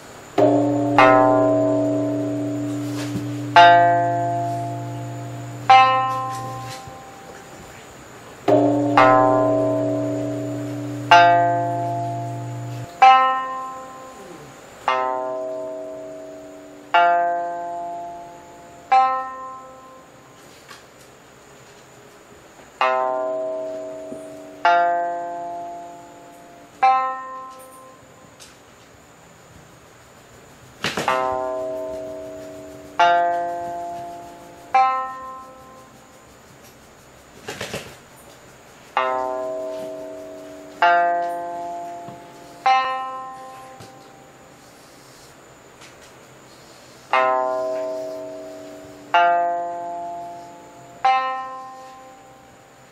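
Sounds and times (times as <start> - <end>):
low steady hum: 0.0 - 20.4
plucked lute notes ringing: 0.4 - 7.6, 8.5 - 20.3, 22.8 - 28.1, 31.1 - 36.0, 39.0 - 44.4, 47.1 - 52.5.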